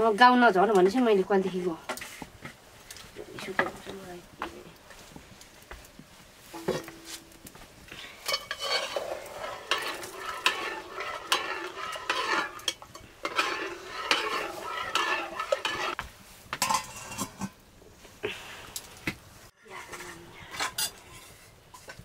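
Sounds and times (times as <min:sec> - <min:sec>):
metal ladle scraping pot: 0:08.0 - 0:16.0, 0:16.6 - 0:17.6, 0:19.9 - 0:22.0.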